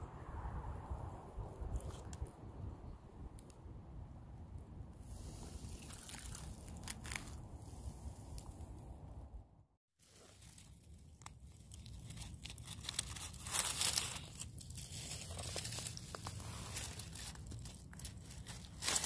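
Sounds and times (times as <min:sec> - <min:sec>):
dry leaves rustling: 0:05.7 - 0:07.4, 0:10.0 - 0:19.0.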